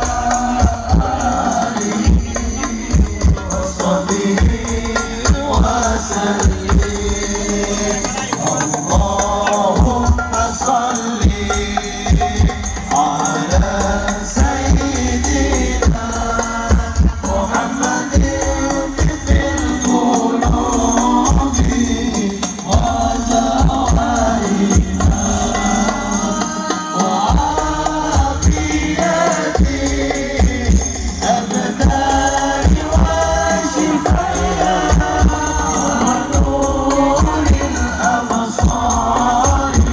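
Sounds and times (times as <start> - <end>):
booming frame drum beats: 0.0 - 39.9
chanted singing: 0.0 - 39.9.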